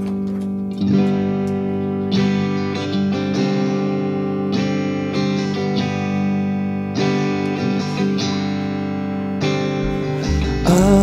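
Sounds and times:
electric guitar: 0.0s - 11.0s
keyboard chords: 9.7s - 11.0s.

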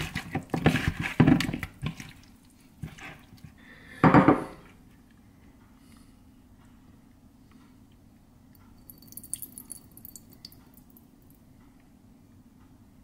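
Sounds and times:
hands tossing wet chicken in bowl: 0.0s - 3.6s.

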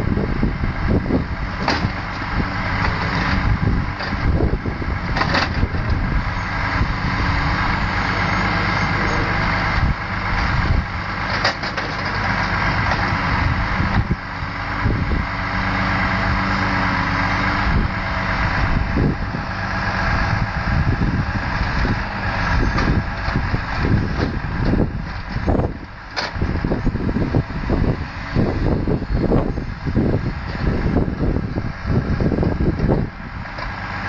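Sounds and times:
hydraulics hissing and whining: 0.0s - 34.0s
truck engine running: 0.0s - 34.0s
logs knocking and thudding: 1.6s - 2.1s.

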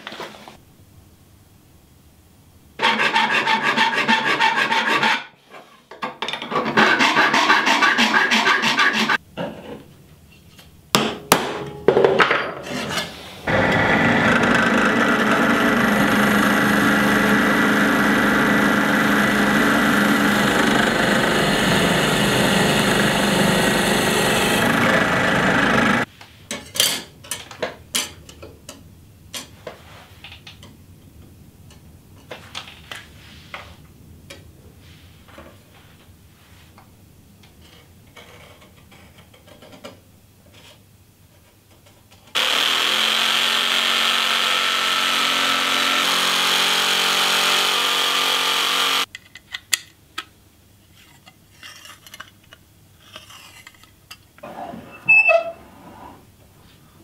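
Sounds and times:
saw cutting steel sheet: 2.8s - 5.4s, 6.7s - 9.2s, 13.5s - 26.1s, 42.4s - 49.1s.

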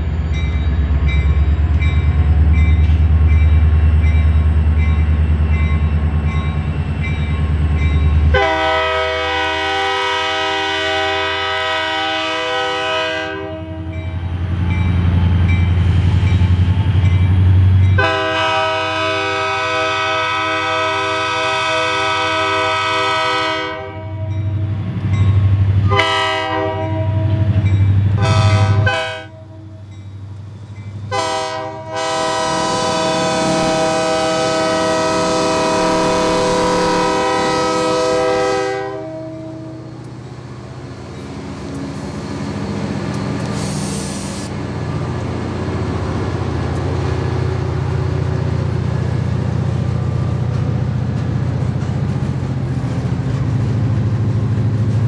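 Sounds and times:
diesel locomotive rumbling: 0.0s - 55.0s
train air horn blasts: 8.3s - 14.0s, 18.0s - 24.5s, 25.9s - 27.6s, 28.2s - 29.8s, 31.1s - 39.8s.

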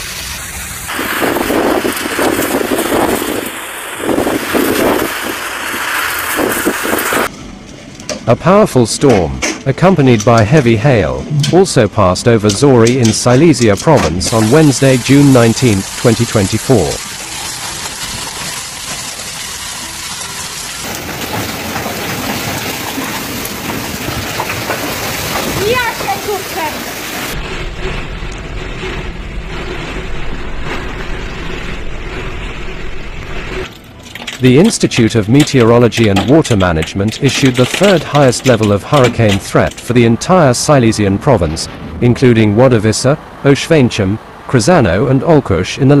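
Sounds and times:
heavy rain and hail: 0.0s - 7.3s, 12.6s - 43.3s
storm wind gusting: 0.0s - 7.3s, 20.5s - 33.7s, 39.5s - 45.3s
wind buffeting microphone: 0.9s - 7.3s.

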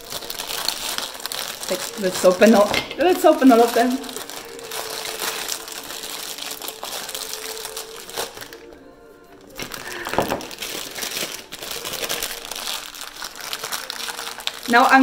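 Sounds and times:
music playing: 0.0s - 15.0s
packaging crinkling and rustling: 0.0s - 15.0s.

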